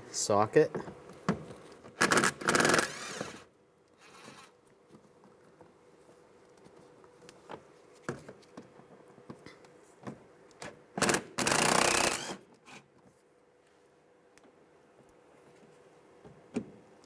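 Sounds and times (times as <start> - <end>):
cordless driver whirring: 2.0 - 4.5, 11.0 - 12.4.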